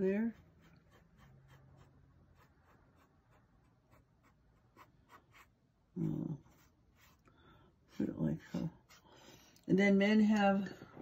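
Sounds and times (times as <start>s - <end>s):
paintbrush dabbing on paper: 0.0s - 7.3s.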